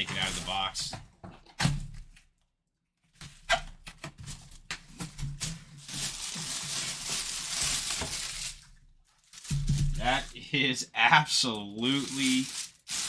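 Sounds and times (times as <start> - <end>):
plastic bag crinkling: 5.4 - 10.4, 11.3 - 13.0.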